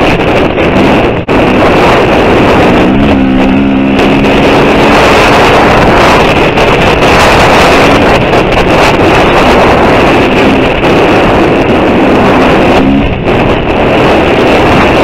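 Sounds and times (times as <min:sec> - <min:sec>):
motorcycle engine revving: 0:00.0 - 0:15.0
wind noise on microphone: 0:00.0 - 0:15.0.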